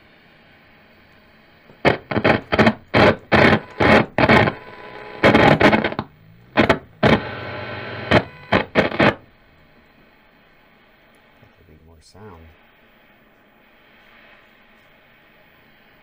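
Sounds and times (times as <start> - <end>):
loudspeaker static bursts: 1.7 - 16.0
loudspeaker hum: 1.9 - 9.3.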